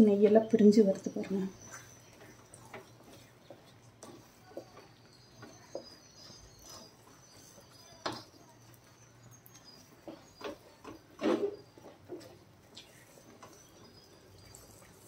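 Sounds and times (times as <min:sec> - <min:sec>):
wooden spatula scraping metal pan: 0:03.0 - 0:08.3.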